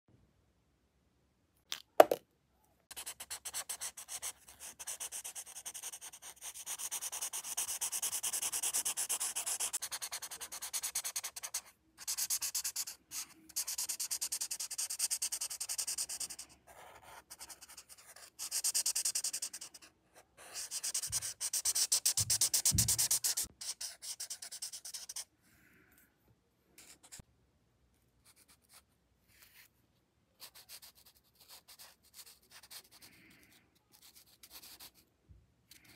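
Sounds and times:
marker scratching on paper: 2.9 - 25.2, 30.4 - 33.1.

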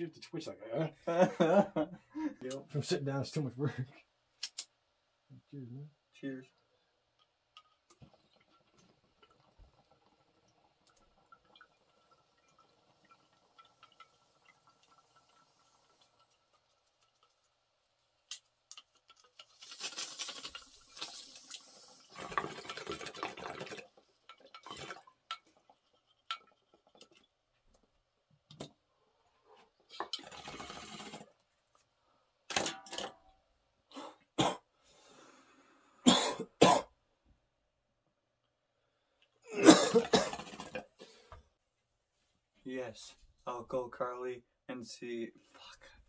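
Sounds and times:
water bubbling in bong: 21.0 - 25.8, 40.0 - 41.0
short sharp coughs: 36.0 - 36.9, 39.5 - 40.5.

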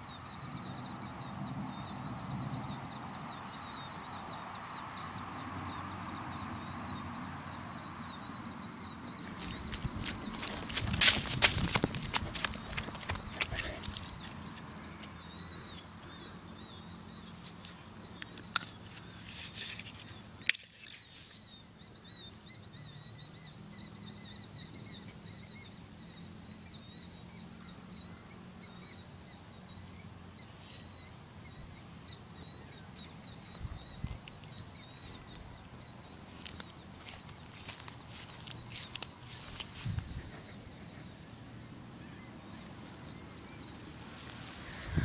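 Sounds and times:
rustles: 9.1 - 22.4, 30.3 - 45.0.

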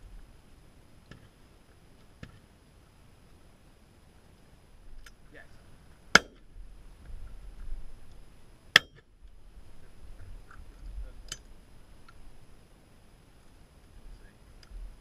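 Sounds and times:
wind rumble on microphone: 6.4 - 8.5, 9.2 - 12.4.

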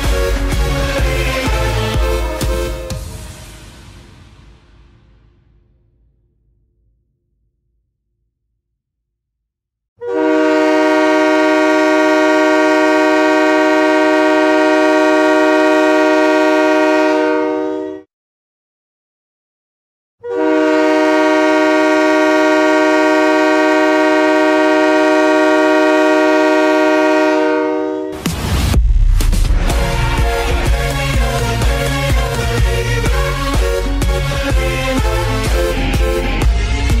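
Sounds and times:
goal horn blasts: 1.8 - 3.4, 10.0 - 18.0, 20.2 - 28.2.

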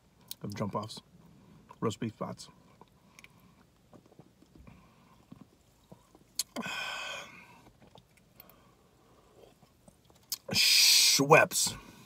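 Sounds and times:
man gulping and swallowing: 4.0 - 8.5.

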